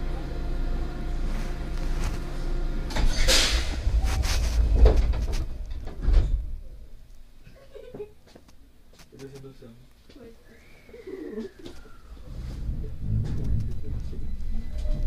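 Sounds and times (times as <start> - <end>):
standing train humming: 0.0 - 7.1
train doors thudding shut: 4.6 - 6.6.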